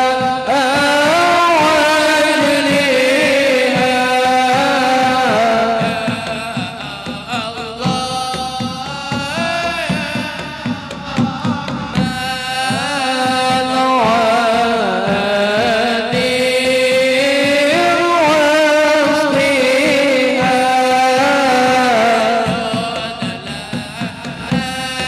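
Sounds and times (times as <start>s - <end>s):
men singing devotional chant: 0.0s - 25.0s.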